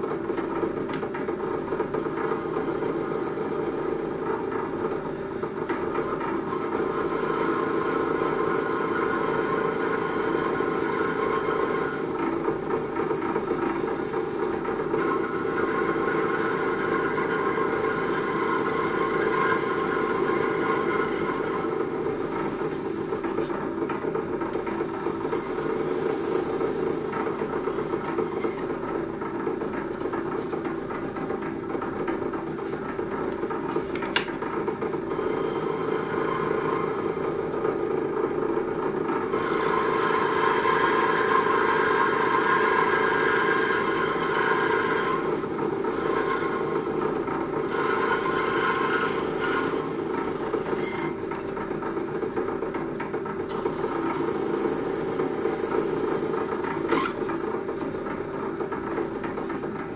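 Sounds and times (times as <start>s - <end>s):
electric saw cutting wood: 2.0s - 23.4s, 25.4s - 28.8s, 35.1s - 51.2s, 53.5s - 57.5s.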